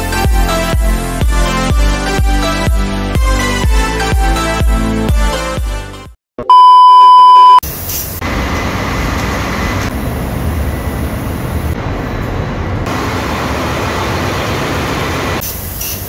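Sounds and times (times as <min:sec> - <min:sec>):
engine room machinery drone: 0:07.6 - 0:16.0.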